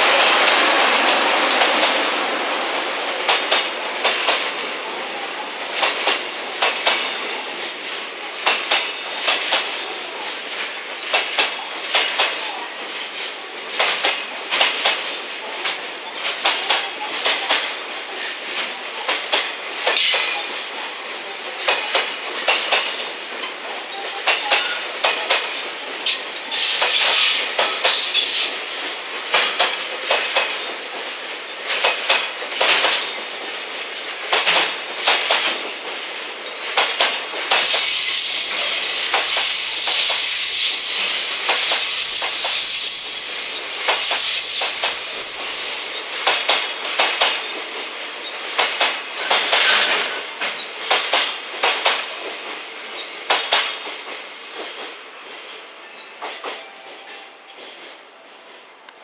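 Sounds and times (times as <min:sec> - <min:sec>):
train wheels clacking over rail joints: 0:00.0 - 0:59.0
high wheel squeal: 0:37.6 - 0:46.4.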